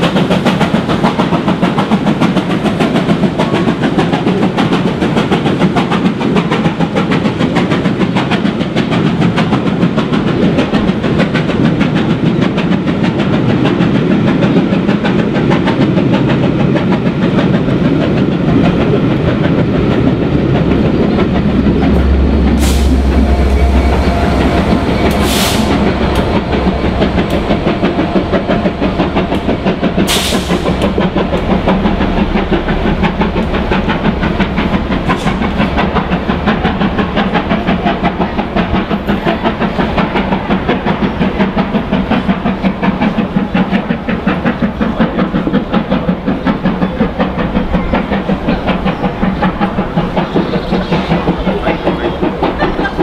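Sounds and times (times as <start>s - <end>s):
steam locomotive exhaust: 0.0s - 53.0s
train wheels clattering on rails: 0.0s - 53.0s
diesel engine drone: 20.5s - 36.4s.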